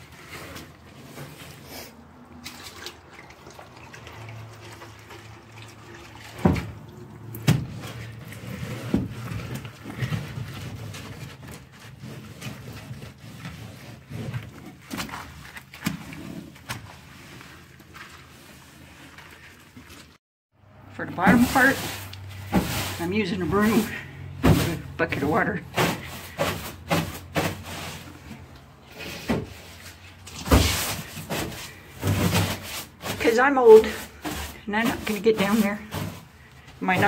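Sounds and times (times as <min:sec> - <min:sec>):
wet rag scrubbing wooden boards: 0:00.0 - 0:20.2, 0:21.0 - 0:37.0
water splashing and dripping: 0:02.0 - 0:08.6, 0:14.7 - 0:20.2.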